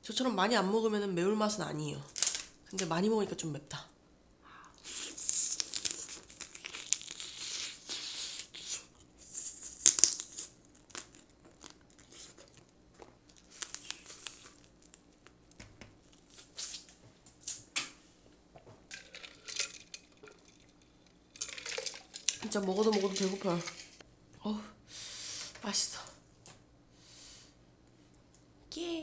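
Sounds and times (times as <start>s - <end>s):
sucking and chewing: 4.5s - 16.9s
crab shell cracking: 5.0s - 8.5s, 9.5s - 16.8s.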